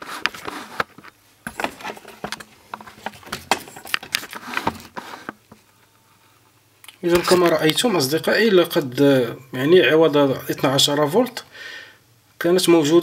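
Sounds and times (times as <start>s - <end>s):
hands clicking and rattling things: 0.0s - 5.6s.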